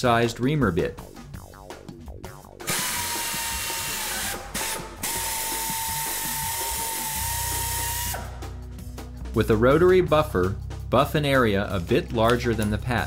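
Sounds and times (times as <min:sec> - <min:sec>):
drill whining: 0:02.7 - 0:08.3.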